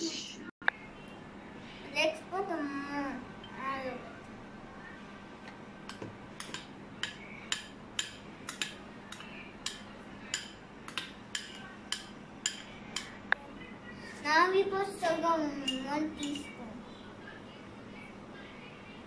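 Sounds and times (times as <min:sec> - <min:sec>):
faint steady hum: 0:00.0 - 0:19.0
metal spoon tapping bowl: 0:05.9 - 0:13.2, 0:15.6 - 0:16.5.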